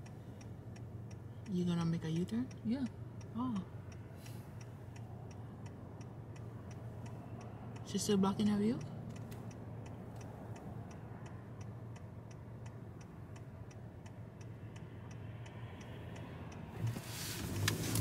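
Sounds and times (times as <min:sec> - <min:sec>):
car turn signal clicking: 0:00.0 - 0:18.0
car driving rushing noise: 0:16.5 - 0:18.0.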